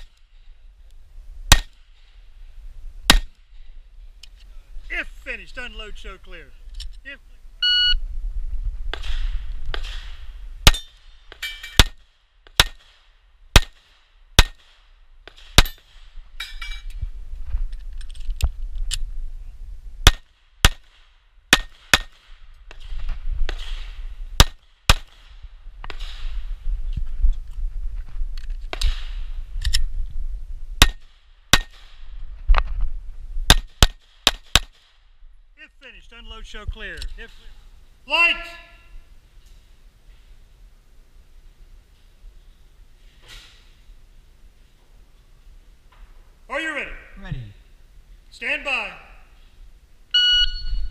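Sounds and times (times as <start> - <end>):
pistol shots: 1.5 - 1.8, 8.9 - 11.0, 11.7 - 16.0, 20.0 - 22.9, 23.5 - 26.2, 30.8 - 32.0, 33.5 - 34.9.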